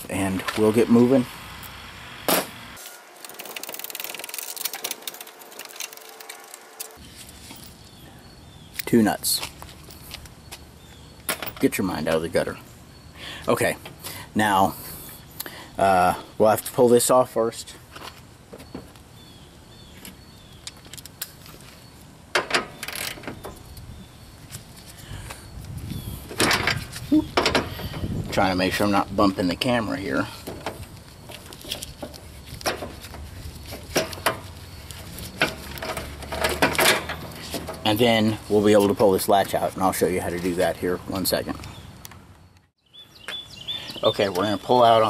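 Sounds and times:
metallic clatter and scraping: 0:02.4 - 0:07.8, 0:30.4 - 0:39.0.

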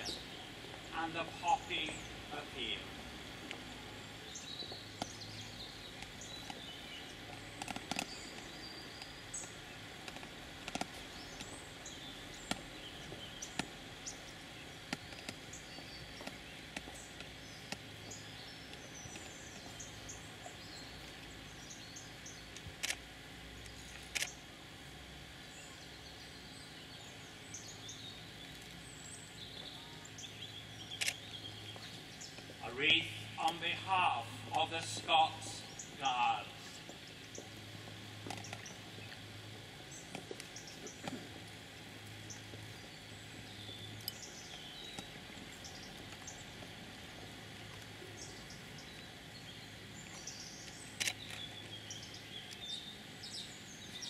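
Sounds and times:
small birds chirping: 0:00.0 - 0:54.0
steady low hush: 0:00.0 - 0:54.0
sharp clicks: 0:22.5 - 0:23.0, 0:23.6 - 0:24.4, 0:30.9 - 0:31.2, 0:50.7 - 0:51.4.

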